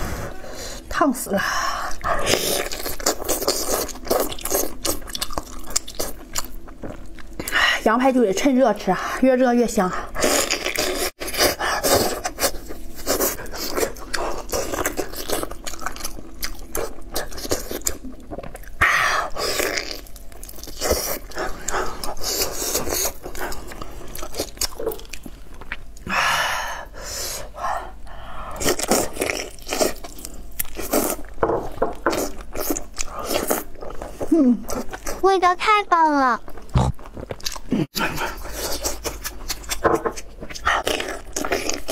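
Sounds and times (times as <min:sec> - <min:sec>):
wet chewing and lip-smacking: 0:01.9 - 0:07.6, 0:10.2 - 0:18.8, 0:19.4 - 0:26.1, 0:28.6 - 0:35.2, 0:36.4 - 0:41.9.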